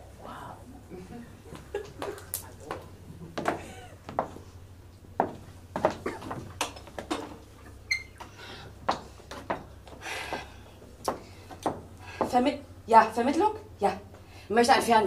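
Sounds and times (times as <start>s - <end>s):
low steady hum: 0.0s - 15.0s
footsteps on wooden stage: 1.6s - 4.5s, 5.2s - 7.4s, 8.8s - 12.4s
short high squeak: 7.9s - 8.2s.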